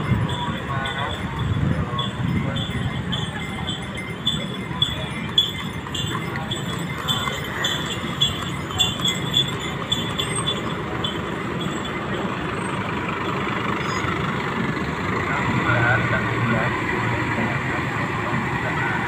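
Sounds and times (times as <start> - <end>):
light metallic jingling: 0.0 - 14.3
bus engine passing: 0.0 - 19.0
street traffic noise: 0.0 - 19.0.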